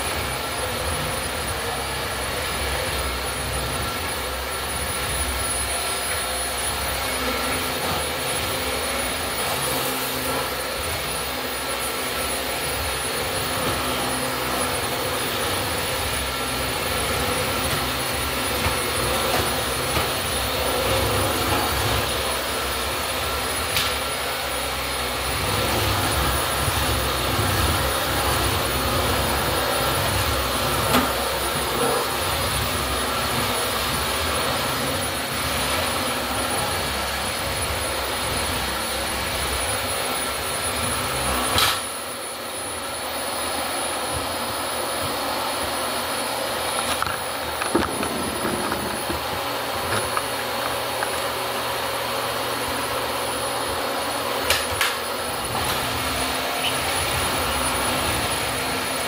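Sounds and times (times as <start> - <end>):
vacuum cleaner running: 0.0 - 59.0
vacuum cleaner clunk: 46.7 - 51.2.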